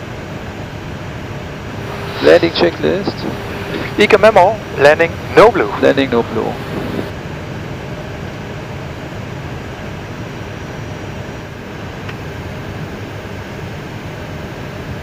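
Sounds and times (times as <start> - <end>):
rushing cockpit noise: 1.7 - 7.2.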